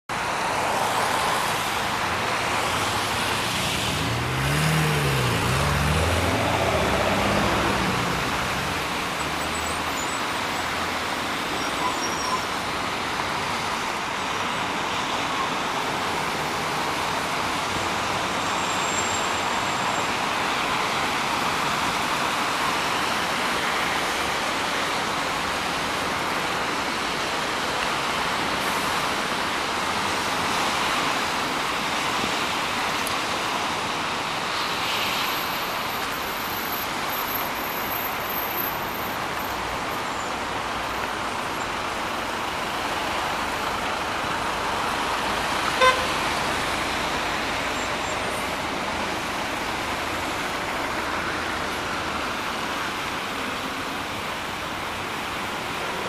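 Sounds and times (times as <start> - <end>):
tyres hissing on wet asphalt: 0.1 - 56.0
passing vehicle engine: 0.7 - 11.0.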